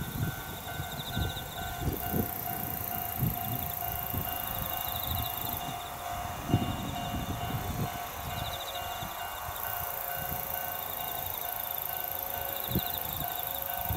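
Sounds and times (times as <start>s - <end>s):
wind gusting on microphone: 0.0s - 11.4s, 12.3s - 13.9s
level crossing alarm ringing: 0.0s - 13.9s.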